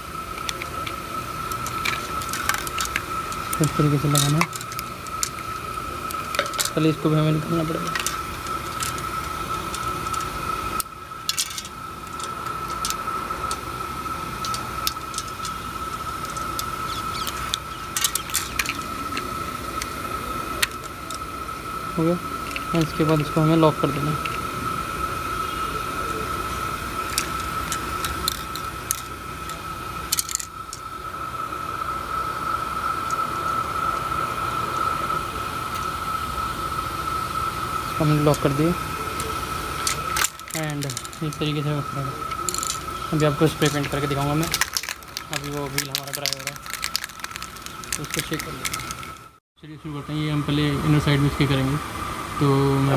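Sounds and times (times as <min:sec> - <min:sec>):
steady high-pitched tone: 0:00.0 - 0:52.9
plastic clicks and scrapes: 0:43.6 - 0:49.2.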